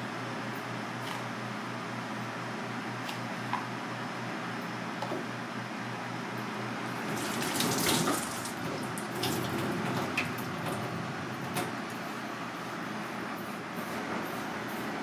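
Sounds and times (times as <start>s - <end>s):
tap water into metal sink: 7.1s - 10.8s.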